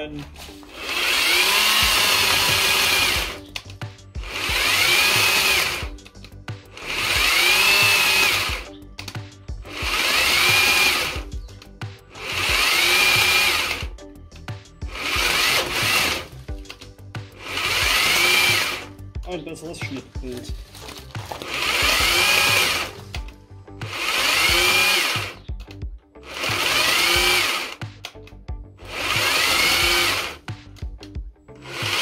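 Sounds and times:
battery chainsaw motor whine: 0.6s - 3.5s, 4.2s - 6.0s, 6.7s - 8.8s, 9.7s - 11.4s, 12.1s - 13.9s, 14.9s - 16.4s, 17.4s - 19.0s, 21.3s - 25.5s, 26.3s - 27.8s, 28.8s - 30.4s, 31.6s - 32.0s.

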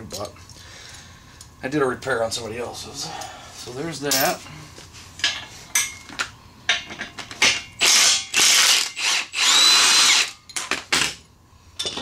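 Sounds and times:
cordless impact gun whirring: 7.8s - 10.4s.

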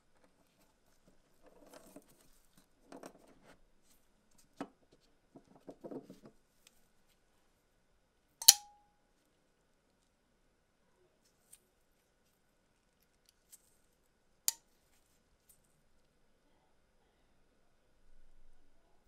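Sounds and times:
knife blade snapping open: 8.4s - 8.7s.

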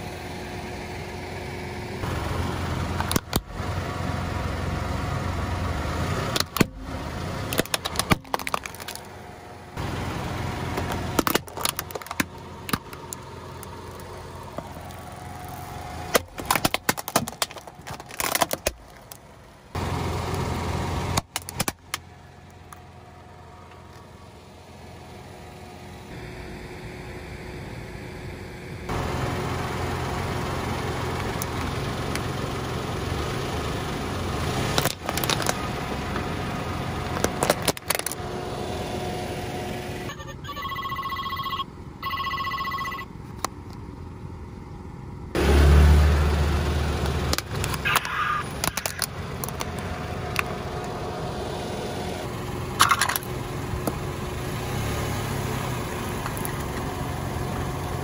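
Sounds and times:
car engine hum: 0.0s - 58.0s
plastic cracking under tyre: 7.5s - 9.1s, 10.8s - 13.2s, 16.1s - 19.3s, 21.2s - 22.0s, 34.8s - 35.7s, 37.2s - 38.2s, 47.0s - 50.5s
electronic ringtone beeping: 40.1s - 43.1s.

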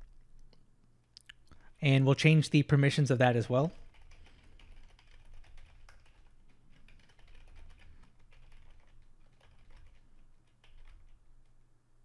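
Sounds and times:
computer keyboard key clicks: 6.8s - 11.2s.

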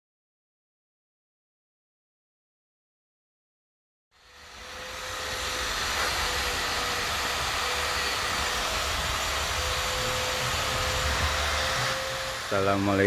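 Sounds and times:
low hum: 4.2s - 12.9s
machine whirring: 4.2s - 13.0s.

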